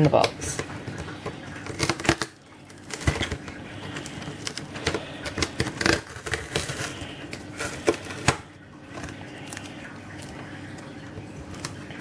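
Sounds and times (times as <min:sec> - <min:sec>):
cardboard box being opened: 0:01.6 - 0:08.4.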